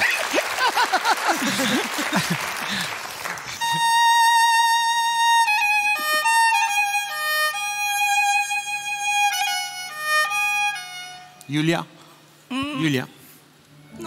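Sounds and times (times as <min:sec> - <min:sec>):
solo violin melody: 0:03.6 - 0:11.5.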